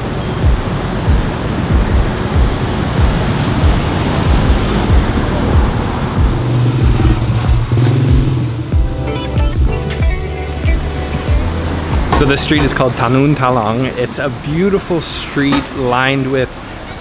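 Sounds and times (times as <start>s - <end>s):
background music with low beat: 0.0s - 13.4s
held bass note: 1.8s - 13.3s.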